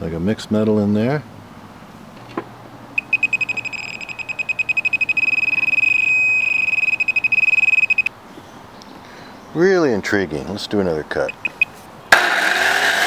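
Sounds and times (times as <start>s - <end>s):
metal detector rapid high beeps: 3.0s - 8.1s, 11.2s - 11.8s.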